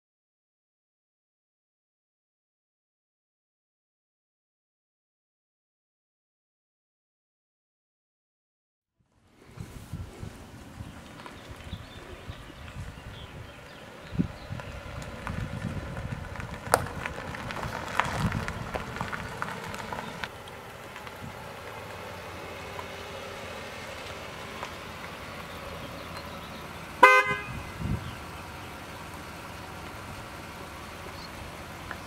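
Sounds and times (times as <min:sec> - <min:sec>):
car pulling up: 0:09.2 - 0:32.0
car horn honk: 0:27.0 - 0:28.0.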